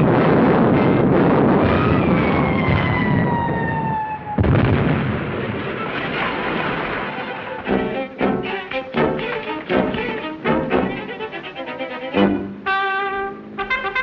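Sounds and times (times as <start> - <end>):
explosion: 0.0 - 7.7
debris raining down: 4.4 - 7.8.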